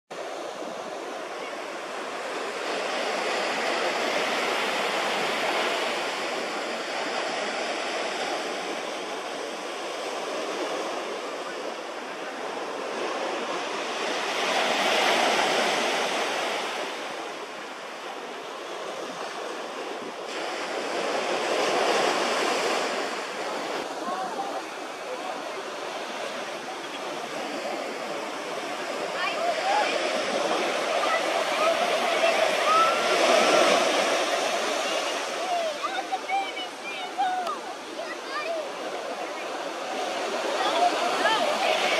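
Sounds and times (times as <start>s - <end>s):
ocean surf breaking: 0.1s - 41.9s.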